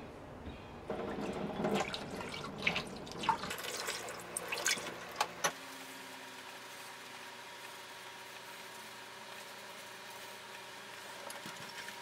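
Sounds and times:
water splashing into metal sink: 0.9 - 5.3.

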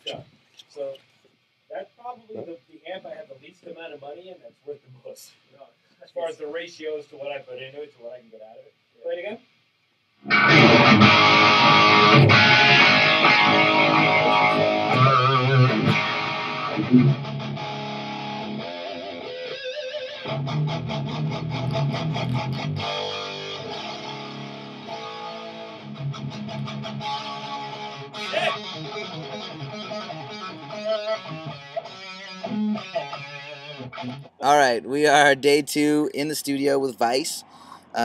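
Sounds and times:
distorted electric guitar: 10.2 - 34.8.

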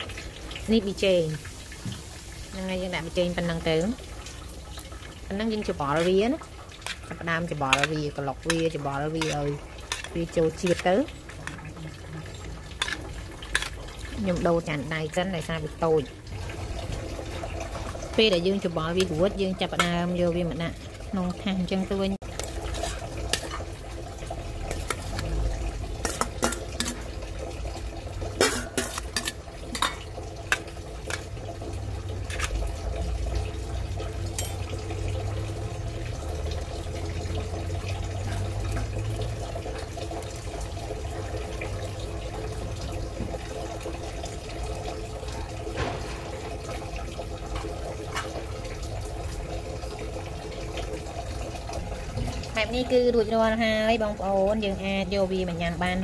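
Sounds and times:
utensil clinking on steel bowl: 6.8 - 14.1, 26.0 - 27.1, 28.4 - 31.3, 34.3 - 34.7.

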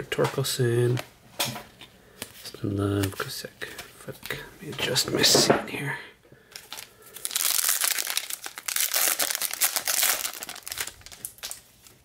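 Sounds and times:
foil wrapper crinkling: 6.5 - 12.0.

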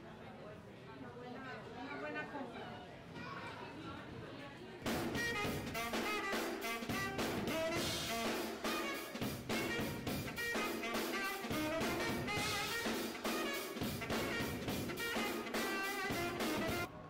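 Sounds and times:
drums and cymbals: 4.9 - 16.9
saxophone melody: 4.9 - 16.9.

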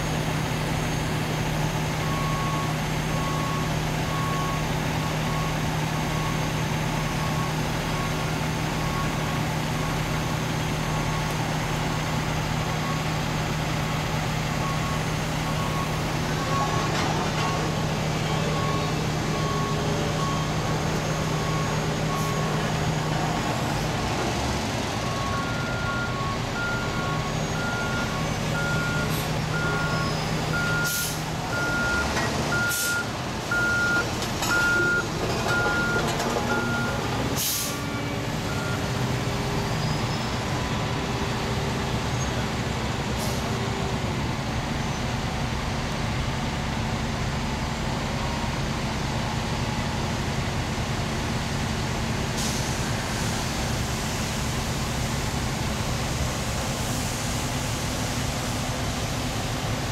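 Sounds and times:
diesel engines running: 0.0 - 59.9
reversing alarm beeping: 2.0 - 10.2, 14.6 - 23.1, 25.0 - 39.1.

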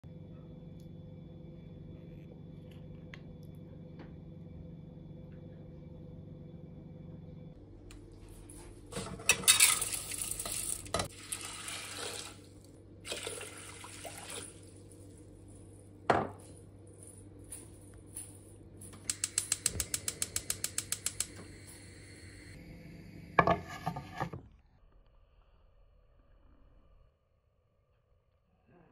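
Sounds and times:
water and lentils poured into pot: 9.5 - 15.0.

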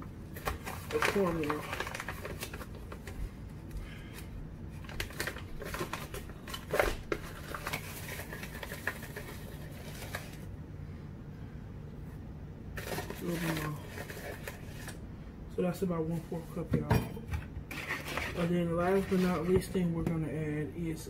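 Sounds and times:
bag rustling and crinkling: 0.3 - 3.2, 4.8 - 10.5, 12.8 - 14.9.

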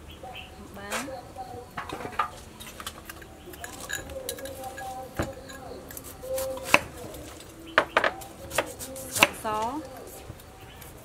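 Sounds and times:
metal spoon clinking bowl: 1.8 - 8.2.

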